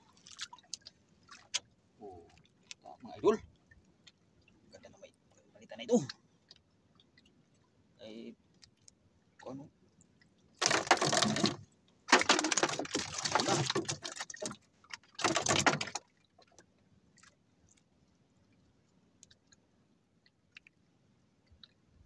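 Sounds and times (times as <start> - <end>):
rustling clattering bursts: 10.6 - 14.5, 15.2 - 16.0.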